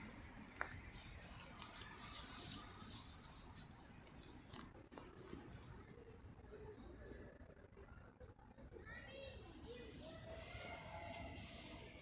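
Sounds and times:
dry grass rustling and crackling: 0.0 - 5.7, 9.4 - 12.0.

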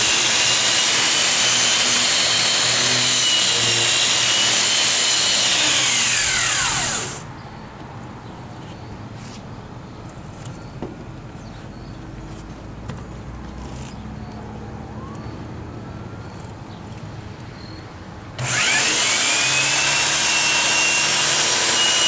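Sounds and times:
angle grinder grinding metal: 0.0 - 7.2, 18.4 - 22.0.

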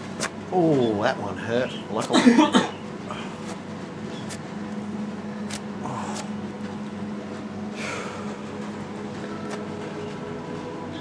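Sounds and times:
steady low hum: 0.0 - 11.0
paper strip rustling: 4.2 - 4.4, 5.4 - 6.3.

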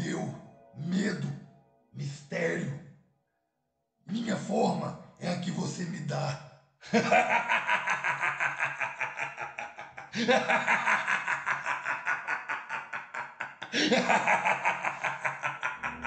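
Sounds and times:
person laughing: 6.9 - 16.0.

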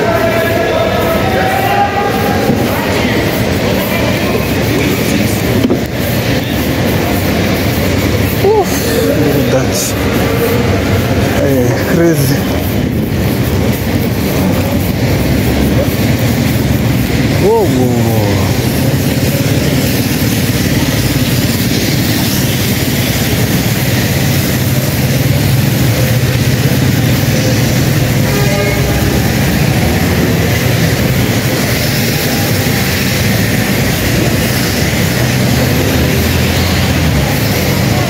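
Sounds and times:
tyres hissing on wet road: 0.0 - 38.0
rain: 12.9 - 38.0.

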